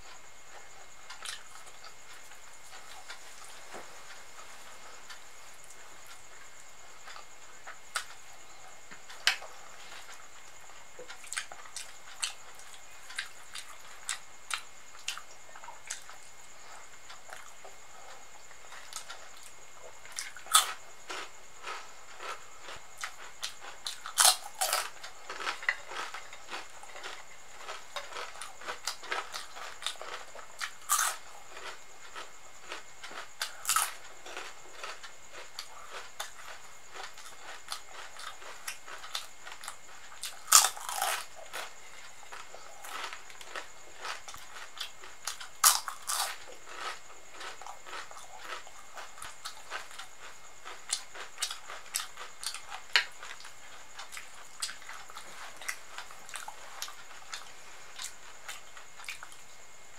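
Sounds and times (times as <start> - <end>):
chewing soft food: 0.0 - 59.6
crunching crisp snacks: 18.1 - 59.4.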